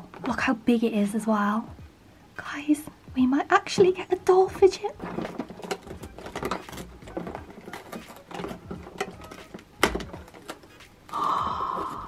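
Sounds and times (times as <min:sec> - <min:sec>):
cardboard ripping: 0:05.0 - 0:11.2
cardboard snapping: 0:05.0 - 0:11.2.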